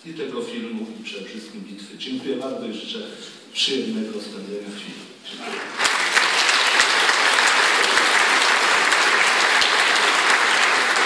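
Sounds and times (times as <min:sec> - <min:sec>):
audience applauding: 0:05.4 - 0:11.0.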